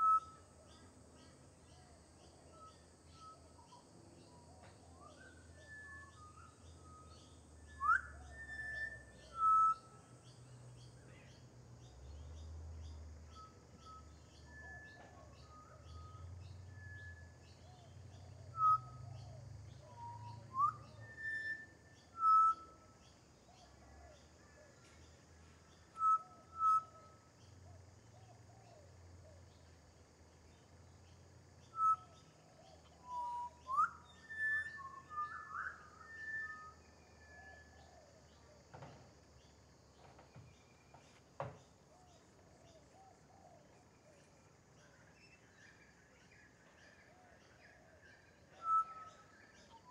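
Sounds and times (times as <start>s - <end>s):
bird whistling flute-like notes: 0.0s - 0.4s, 5.0s - 10.1s, 13.3s - 17.5s, 18.5s - 23.0s, 26.0s - 27.2s, 31.7s - 32.3s, 33.0s - 38.0s, 48.2s - 49.9s.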